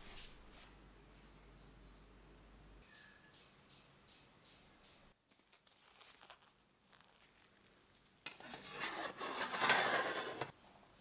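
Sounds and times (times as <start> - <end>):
cling film crinkling: 5.3 - 8.5
metal lid scraping on pan: 8.3 - 10.5.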